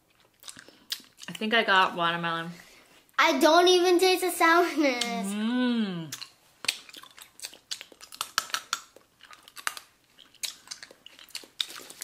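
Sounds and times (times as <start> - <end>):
candy clicking against teeth: 6.1 - 12.0
wet mouth smacks: 6.1 - 12.0.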